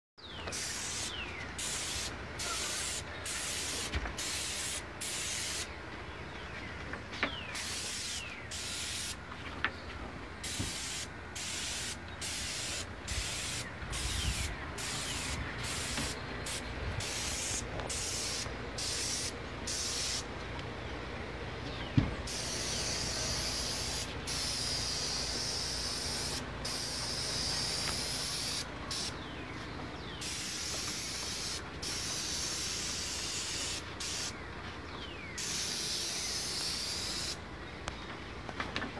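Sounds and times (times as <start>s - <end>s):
spray gun hissing: 0.5s - 5.7s, 7.6s - 9.2s, 10.4s - 20.3s, 22.3s - 29.2s, 30.2s - 34.4s, 35.4s - 37.4s.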